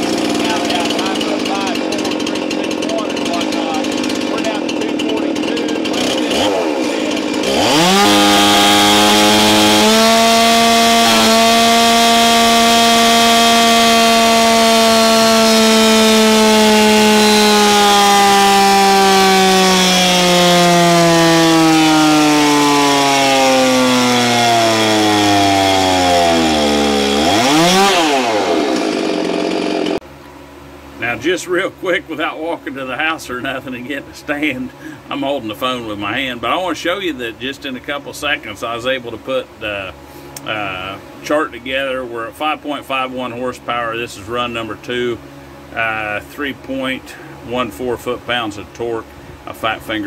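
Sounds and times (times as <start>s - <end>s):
chainsaw screaming at full throttle: 0.0s - 30.0s.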